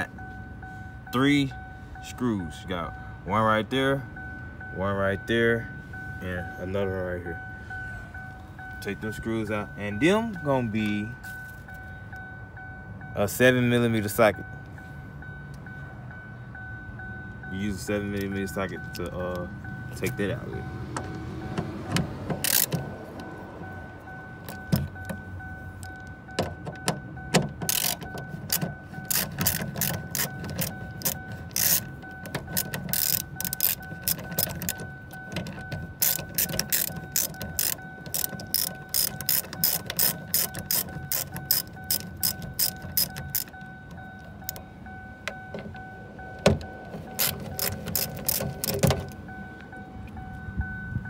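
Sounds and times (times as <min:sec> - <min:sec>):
ratchet clicking: 0:21.9 - 0:23.4, 0:25.8 - 0:44.6, 0:46.4 - 0:49.2.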